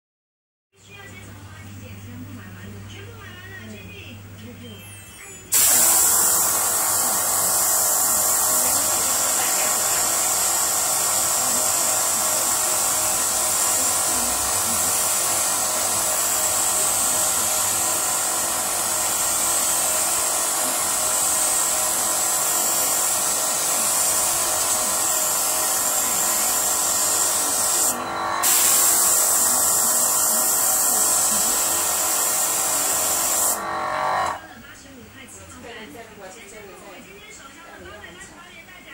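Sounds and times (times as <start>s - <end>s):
compressed air hissing: 5.5s - 34.4s
compressor motor hum: 5.6s - 34.4s.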